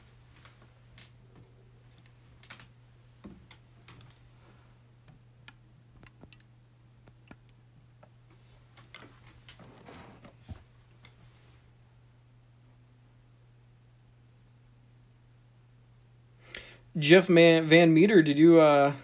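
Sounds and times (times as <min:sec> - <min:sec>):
faint clicks and taps: 0:00.0 - 0:04.2, 0:05.0 - 0:11.2.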